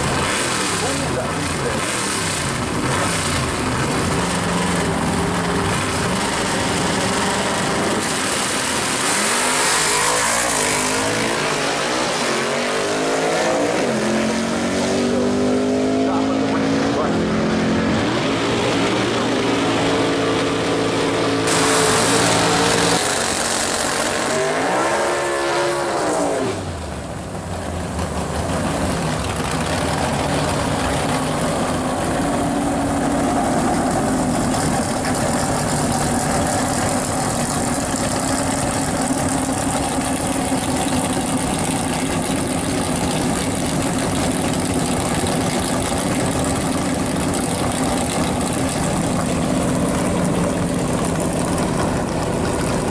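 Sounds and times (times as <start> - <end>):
drag race engines running hard: 0.0 - 52.9
loud engine through open exhaust: 0.0 - 52.9.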